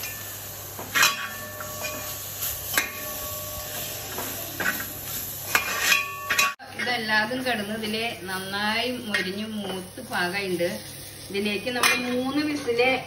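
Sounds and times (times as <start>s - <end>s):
pan ringing: 0.0s - 4.9s, 5.8s - 6.6s
metal ladle scraping pan: 0.9s - 7.0s.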